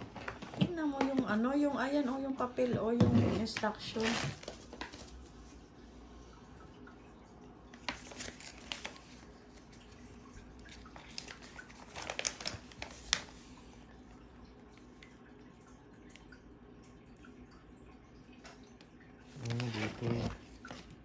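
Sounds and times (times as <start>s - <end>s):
plastic bag crinkling: 7.8s - 9.8s, 10.6s - 13.3s.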